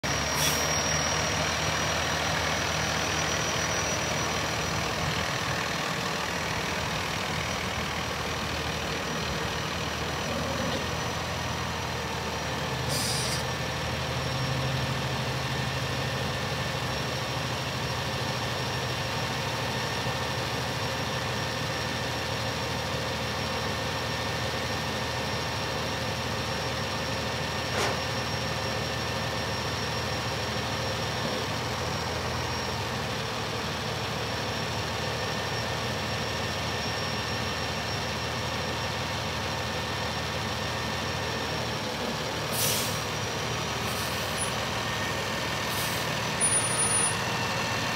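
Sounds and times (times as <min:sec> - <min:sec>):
diesel truck engine running: 0:00.0 - 0:47.9
air hiss: 0:12.9 - 0:13.5.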